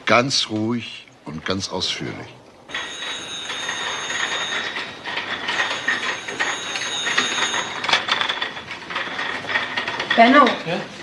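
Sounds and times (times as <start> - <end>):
machinery high whine: 2.7 - 8.5
machinery clattering: 2.7 - 11.0.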